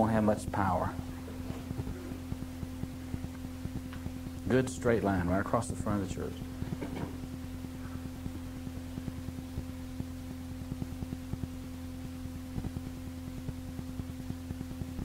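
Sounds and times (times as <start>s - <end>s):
low hum of held tones: 0.0s - 15.0s
faint crackling clicks: 1.5s - 4.5s.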